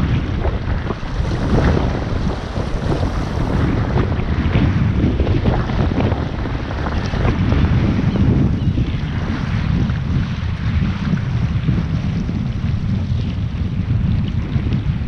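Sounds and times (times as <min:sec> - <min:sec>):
wind buffeting microphone: 0:00.0 - 0:15.0
river water rushing and splashing: 0:00.8 - 0:04.2.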